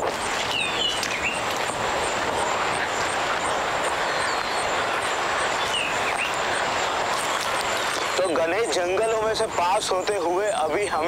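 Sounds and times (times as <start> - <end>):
bird chirps: 0.0 - 11.0
waterfall roaring: 0.0 - 11.0.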